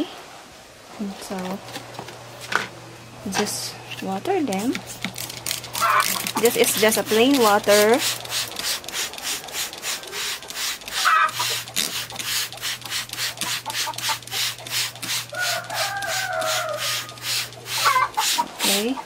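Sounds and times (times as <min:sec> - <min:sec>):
trigger sprayer hissing: 0:04.4 - 0:18.9
chicken calling: 0:05.7 - 0:06.5, 0:10.0 - 0:11.8, 0:13.5 - 0:19.0.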